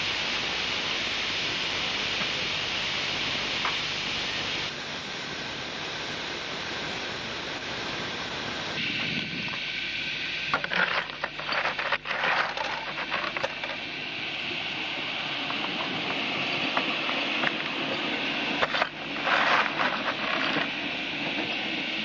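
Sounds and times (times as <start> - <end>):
model steam locomotive rattle and hiss: 0.0 - 22.0
rapid clicking and hissing: 8.6 - 22.0.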